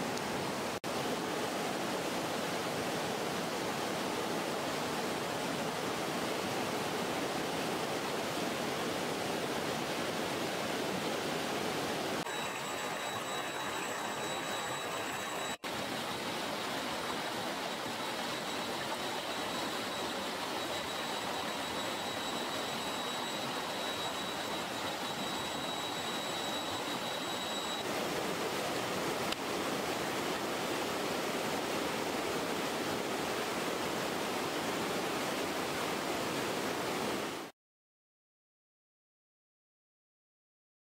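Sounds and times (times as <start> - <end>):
river water rushing over rocks: 0.0 - 37.5
thin high steady tone: 12.2 - 27.9.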